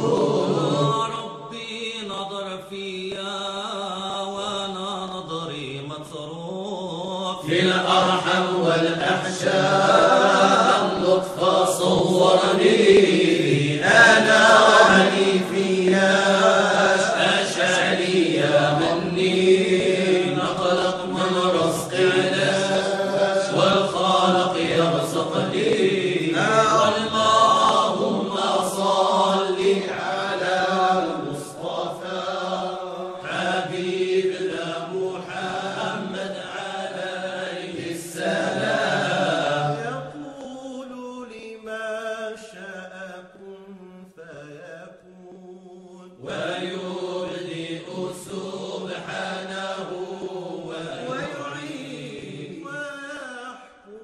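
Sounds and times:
chant-like sustained voices: 0:00.0 - 0:41.4, 0:42.3 - 0:54.0.

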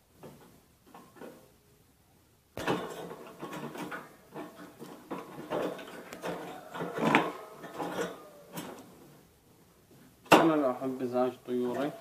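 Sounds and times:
bird cage clattering and scraping: 0:02.6 - 0:09.2.

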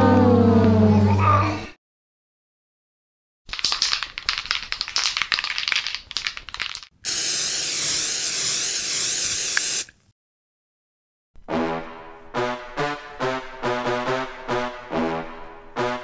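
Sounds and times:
spray can hissing: 0:03.5 - 0:10.0
spray can rattling: 0:03.5 - 0:10.0.

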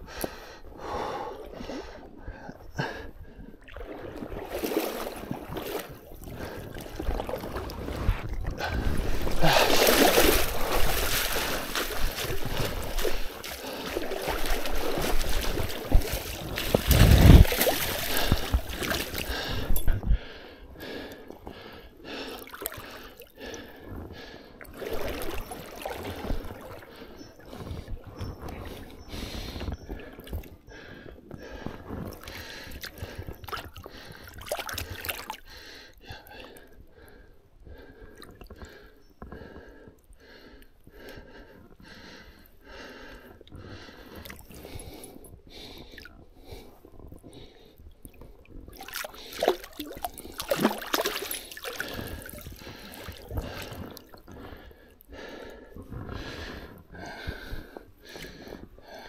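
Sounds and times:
water splashing: 0:03.6 - 0:19.9, 0:24.7 - 0:26.9, 0:48.7 - 0:54.3.

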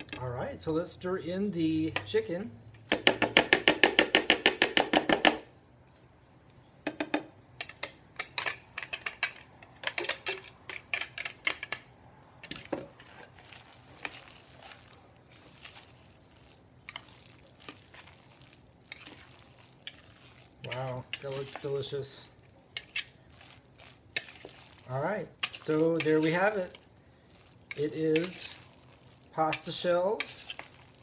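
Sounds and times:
spoon scraping in pot: 0:12.5 - 0:21.9, 0:22.7 - 0:26.8, 0:27.6 - 0:31.0.

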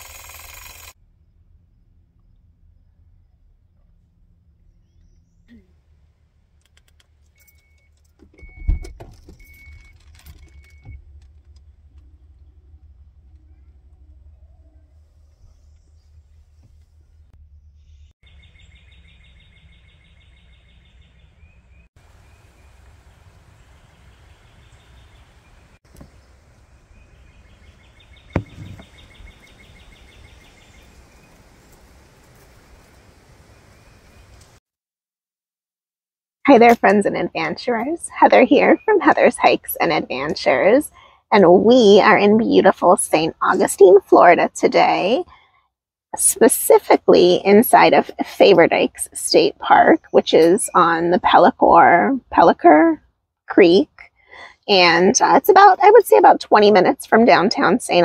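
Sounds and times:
rattling and clicking: 0:06.6 - 0:14.3
low rumble: 0:09.8 - 0:19.9
heavy thump: 0:28.4 - 0:28.9.

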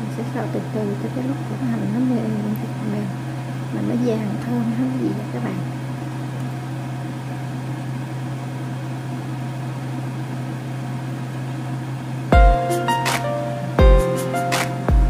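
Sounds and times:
steady low hum: 0:00.0 - 0:15.0
music: 0:12.4 - 0:15.0.

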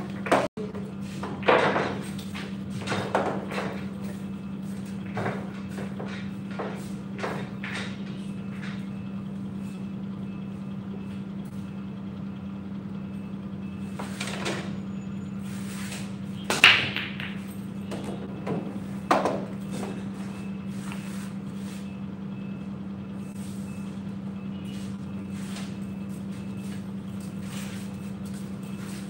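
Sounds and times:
billiard balls clacking: 0:05.0 - 0:08.8, 0:16.4 - 0:20.0
cue striking ball: 0:16.5 - 0:19.5.

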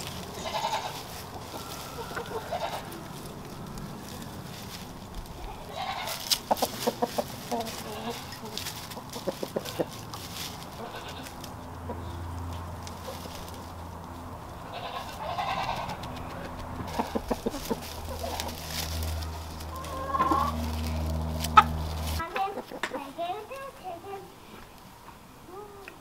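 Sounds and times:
steady low hum: 0:00.0 - 0:22.3
hoarse bleat-like animal call: 0:00.3 - 0:01.0, 0:05.6 - 0:06.2, 0:14.6 - 0:16.0.

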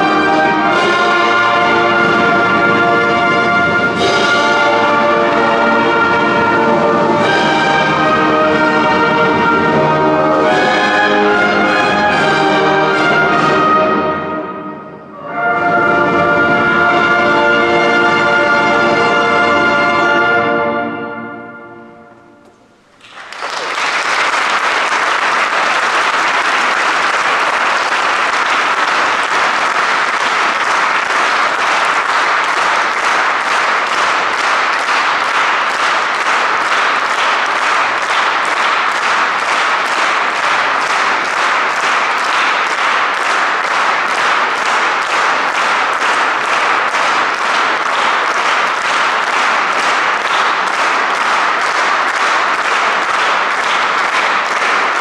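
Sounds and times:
audience applauding: 0:00.0 - 0:14.0, 0:22.9 - 0:55.0
brass chord held: 0:00.0 - 0:22.8.

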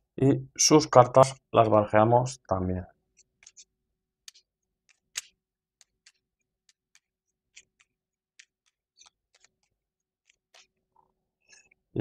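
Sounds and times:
cards being shuffled: 0:03.1 - 0:10.9.

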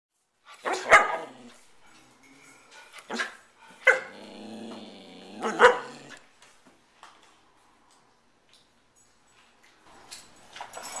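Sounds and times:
dogs barking: 0:00.6 - 0:01.5, 0:03.1 - 0:04.2, 0:05.4 - 0:06.2
dog growling: 0:00.8 - 0:01.6, 0:03.9 - 0:06.2.

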